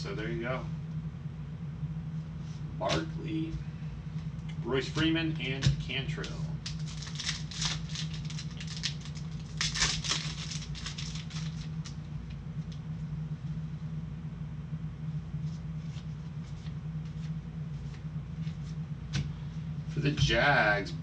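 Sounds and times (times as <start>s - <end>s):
steady low hum: 0.0s - 21.0s
cards flicking and rustling: 5.6s - 12.0s.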